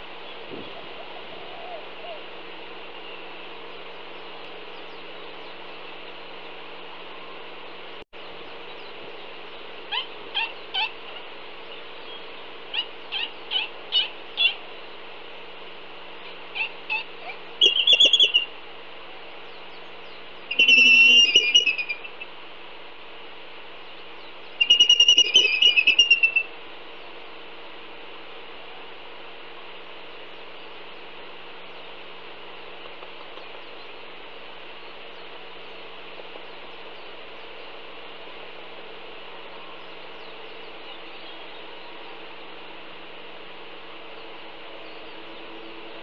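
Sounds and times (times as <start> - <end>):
albatross squeaky calls: 9.9 - 11.0, 12.7 - 14.6, 16.5 - 18.5, 20.5 - 22.1, 24.6 - 26.5
albatross pulsing squeals: 16.6 - 18.5, 20.5 - 22.1, 24.6 - 26.5.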